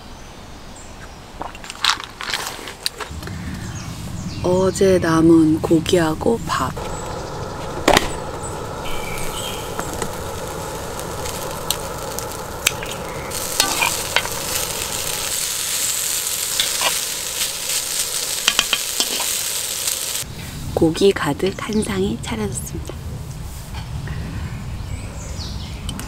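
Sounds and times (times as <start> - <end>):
food sizzling on griddle pan: 6.5 - 20.3
tongs and spoon scraping pan: 16.5 - 19.4.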